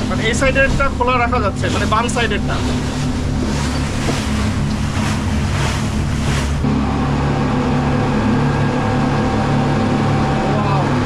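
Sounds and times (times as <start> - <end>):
wind and water spray rushing: 0.0 - 6.8
boat engines droning: 0.0 - 11.0.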